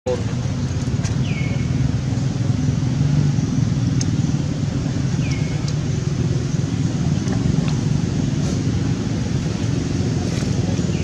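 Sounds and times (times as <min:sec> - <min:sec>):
low outdoor rumble: 0:00.1 - 0:11.0.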